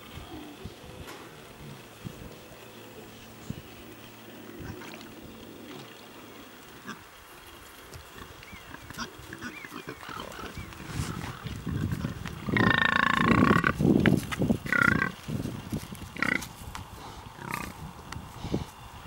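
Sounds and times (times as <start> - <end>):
pigs grunting: 8.2 - 13.8, 14.6 - 15.2, 16.2 - 16.5, 17.4 - 17.8
pig squealing: 12.5 - 13.8.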